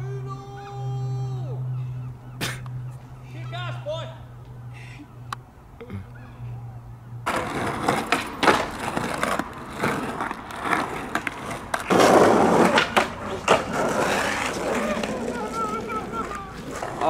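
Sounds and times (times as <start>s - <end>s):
skateboard clacking: 7.2s - 17.0s
skateboard wheels rumbling: 7.2s - 17.0s.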